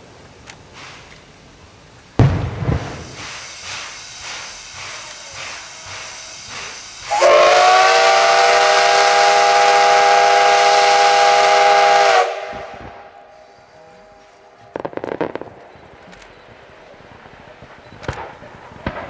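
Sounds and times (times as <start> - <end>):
steam hissing: 0.0 - 18.8
steam locomotive whistle: 4.8 - 14.6.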